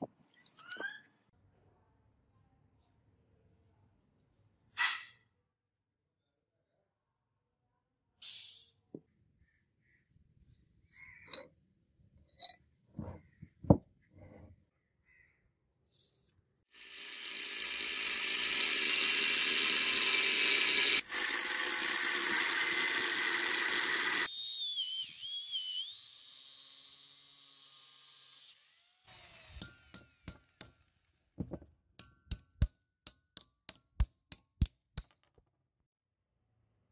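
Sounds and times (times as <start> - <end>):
angle grinder cutting steel: 16.8 - 30.8.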